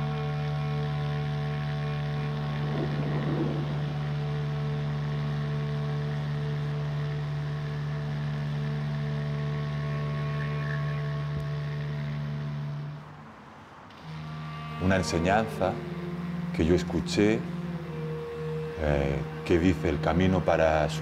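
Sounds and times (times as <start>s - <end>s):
low drone with stacked tones: 0.0s - 13.1s, 14.0s - 21.0s.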